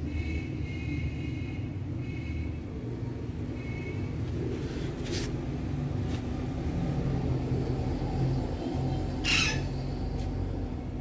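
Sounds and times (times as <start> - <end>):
parakeet squawk: 9.2 - 9.8.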